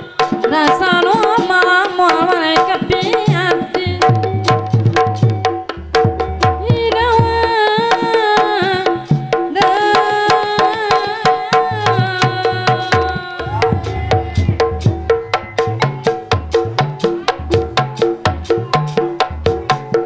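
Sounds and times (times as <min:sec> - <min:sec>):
hand drums beating: 0:00.0 - 0:20.0
person singing long held notes: 0:06.7 - 0:15.0.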